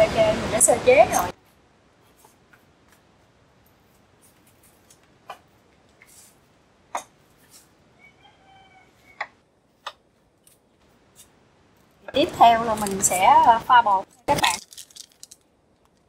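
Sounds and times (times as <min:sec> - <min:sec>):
faint pitched call: 0:08.0 - 0:09.4.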